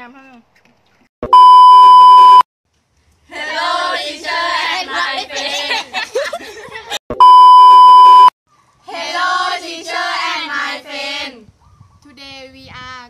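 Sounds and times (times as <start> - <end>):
electronic beep: 1.2 - 2.4, 7.1 - 8.3.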